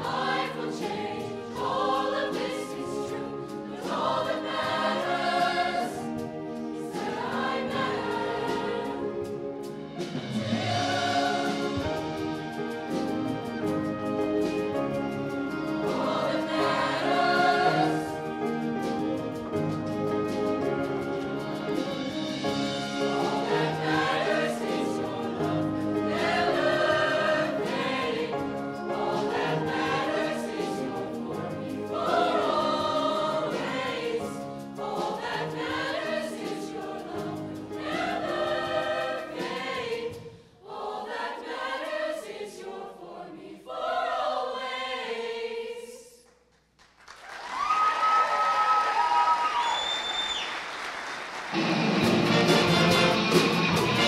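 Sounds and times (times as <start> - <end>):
band accompaniment: 0.0 - 40.4, 51.4 - 54.0
choir singing in chords: 0.0 - 46.2
audience applause: 46.8 - 54.0
person whistling: 49.4 - 50.5.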